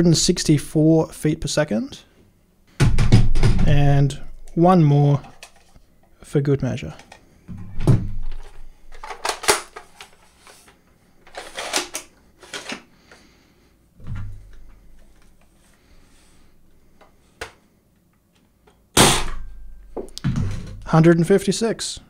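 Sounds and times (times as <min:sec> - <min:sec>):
plastic clicks and rattles: 0:05.2 - 0:05.8, 0:07.0 - 0:07.2, 0:08.3 - 0:12.8.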